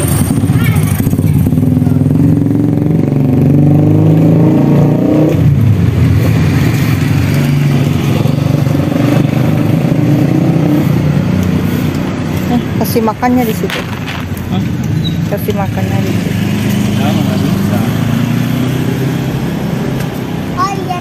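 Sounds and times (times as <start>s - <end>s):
motorcycle engine running: 0.0s - 4.6s, 5.2s - 20.0s.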